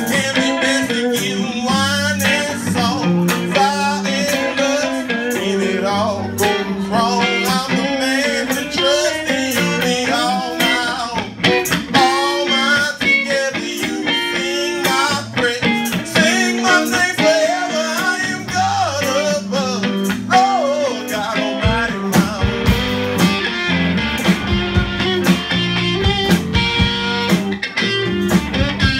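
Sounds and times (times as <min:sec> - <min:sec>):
man singing: 0:00.0 - 0:23.0
bass guitar: 0:00.0 - 0:28.9
drums: 0:00.0 - 0:28.9
electric guitar: 0:00.0 - 0:28.9.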